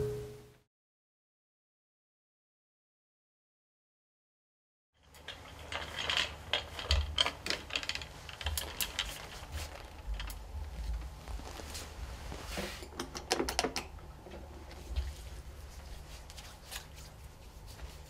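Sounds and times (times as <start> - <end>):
cables clicking and rattling: 5.0 - 18.0.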